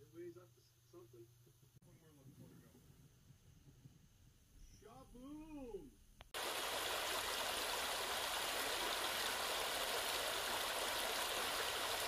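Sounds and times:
creek water flowing: 0:06.4 - 0:12.0.

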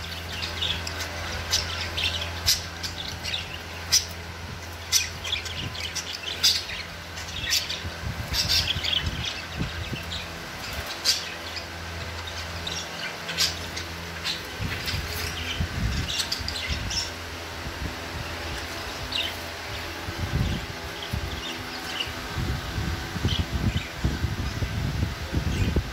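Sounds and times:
budgerigars chirping: 0:00.0 - 0:17.3
steady low hum: 0:00.0 - 0:25.9.

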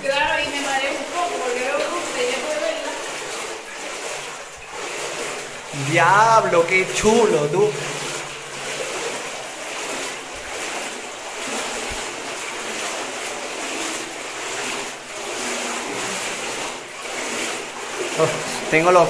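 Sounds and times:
mountain river rushing: 0:05.6 - 0:09.2, 0:17.8 - 0:19.0.

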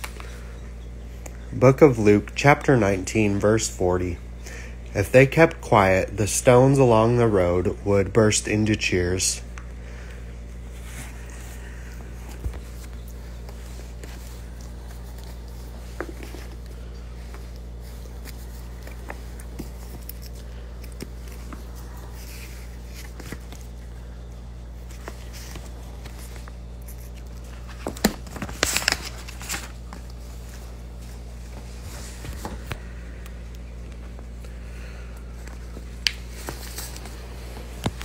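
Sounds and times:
low electrical hum: 0:00.0 - 0:38.0
paper rustling: 0:10.7 - 0:32.8, 0:35.4 - 0:38.0.

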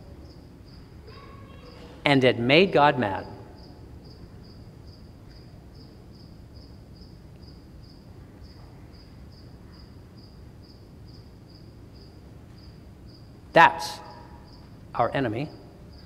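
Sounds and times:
cricket chirping: 0:00.0 - 0:16.0
low room hum: 0:00.0 - 0:16.0.

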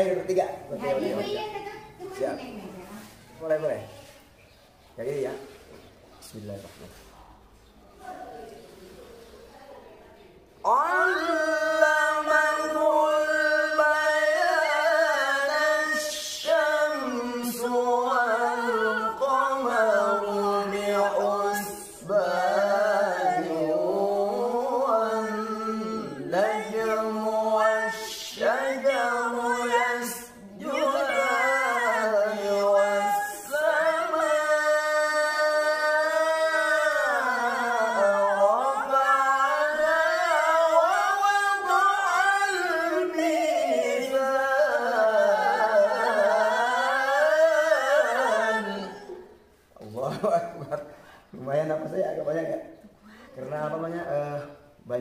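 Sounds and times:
voices chanting recitation: 0:00.0 - 0:09.3, 0:10.3 - 0:55.0.

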